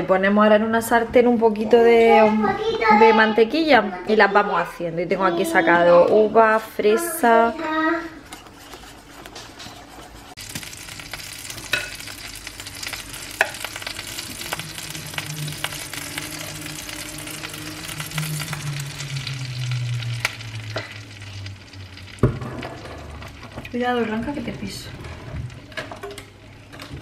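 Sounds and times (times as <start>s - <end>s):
pancakes sizzling in a pan: 8.4s - 24.0s
low steady hum: 10.2s - 26.9s.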